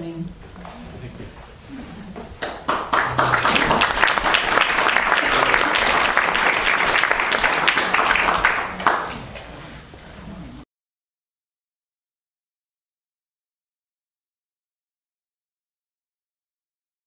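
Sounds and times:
audience applauding: 2.4 - 9.5.

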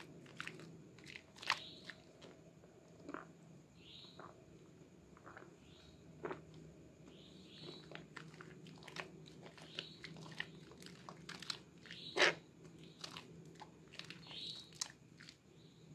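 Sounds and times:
hands squelching soap lather: 0.0 - 2.4, 7.7 - 15.4.

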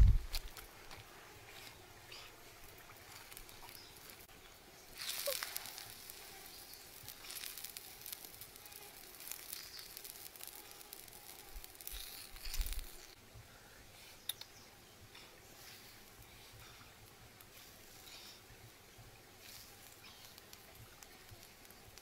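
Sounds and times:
hissing and crackling: 0.0 - 22.0
squid sizzling in hot pan: 3.1 - 13.2, 19.4 - 22.0.

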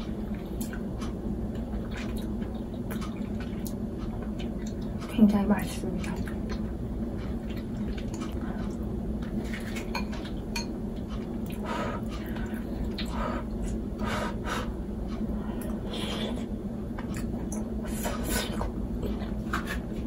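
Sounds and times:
steady low hum: 0.0 - 20.0
close-up chewing: 0.1 - 5.1, 6.0 - 14.1.

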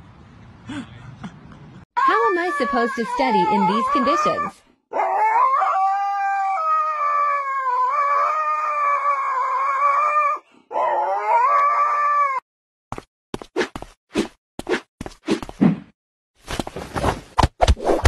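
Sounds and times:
husky howling: 2.0 - 12.4.

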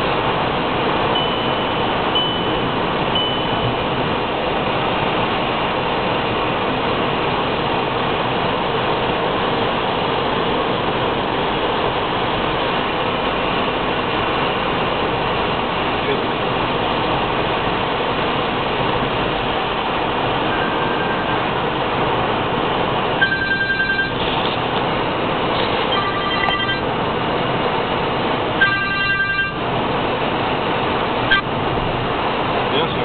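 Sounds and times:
car road and tyre noise: 0.0 - 33.0
short high beeps: 1.2 - 3.8, 23.2 - 24.6, 25.6 - 26.9, 28.6 - 29.6.

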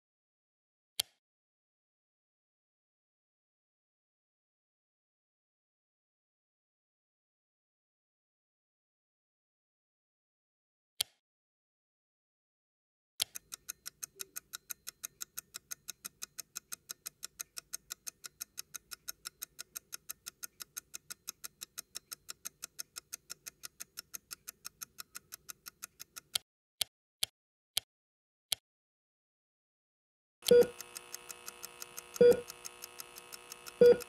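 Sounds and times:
rapid mechanical clicking: 30.4 - 34.0.

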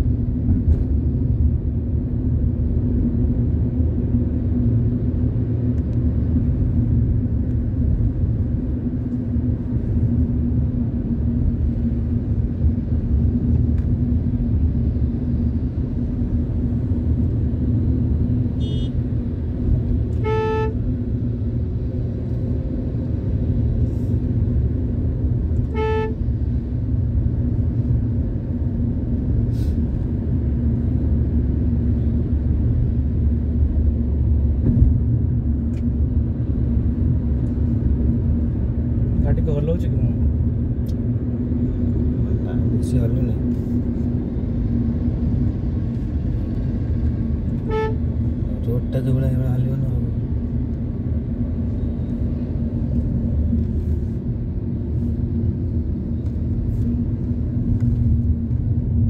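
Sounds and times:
car engine and road rumble: 0.0 - 59.0
vehicle horn toots: 18.6 - 19.0, 20.1 - 20.8, 25.6 - 26.3, 47.6 - 48.0.

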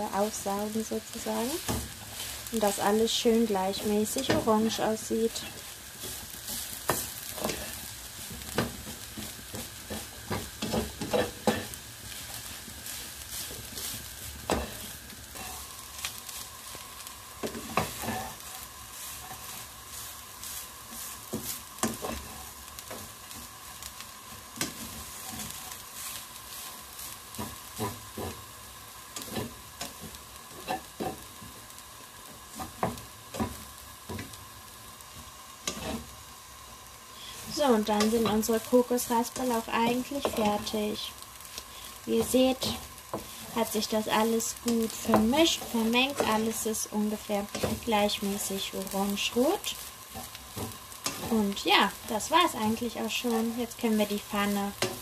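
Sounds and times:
coconut sizzling in a hot pan: 0.0 - 55.0
spatula scraping and knocking pan: 5.4 - 16.8, 17.4 - 23.6, 24.2 - 28.5, 29.1 - 31.6, 32.2 - 34.4, 35.0 - 36.1, 42.2 - 46.7, 47.3 - 51.9.

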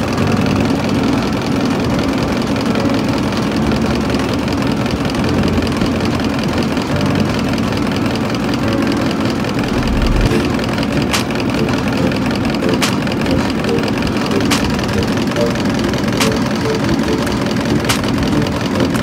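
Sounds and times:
machinery droning: 9.2 - 19.0.

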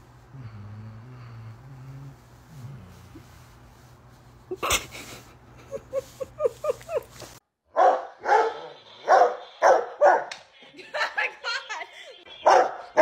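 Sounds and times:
dog barking loudly: 7.7 - 10.3, 12.4 - 13.0.

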